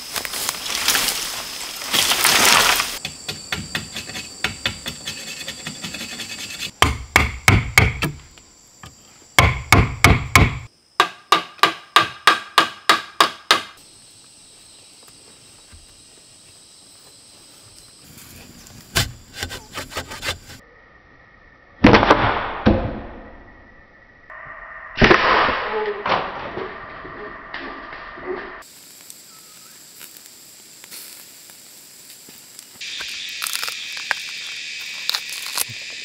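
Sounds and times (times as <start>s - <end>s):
bamboo leaves rustling: 0.0s - 3.1s, 17.4s - 20.5s, 28.7s - 36.0s.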